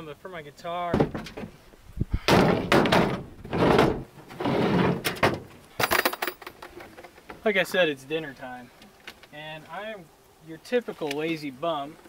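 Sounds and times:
hard case knocks and thuds: 0.9 - 1.6, 2.2 - 4.1
rattling clatter: 2.3 - 7.2.

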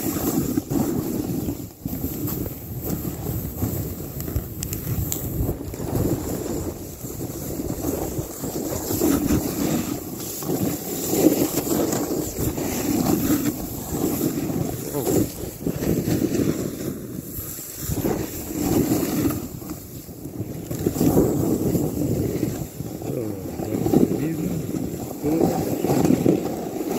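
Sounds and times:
snowboard hissing through snow: 0.0 - 4.1, 4.8 - 20.1
wind on microphone: 0.0 - 26.9.

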